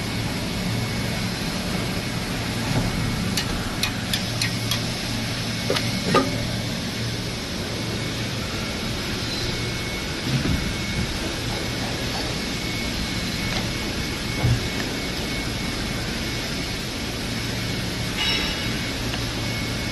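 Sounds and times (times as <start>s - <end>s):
machine hum and hiss: 0.0s - 19.9s.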